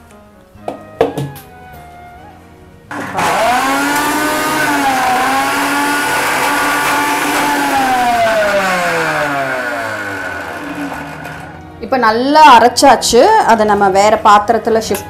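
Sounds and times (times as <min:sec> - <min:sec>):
mixer grinder motor running: 0:02.9 - 0:11.7.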